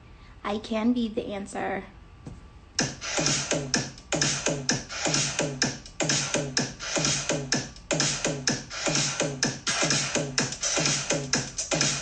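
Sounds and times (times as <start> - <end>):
electronic music: 2.8 - 12.0
quick drum machine beat: 2.8 - 12.0.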